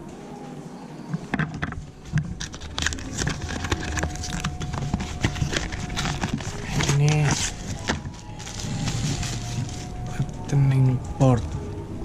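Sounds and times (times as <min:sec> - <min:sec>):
cable and packaging handled: 0:01.2 - 0:10.5.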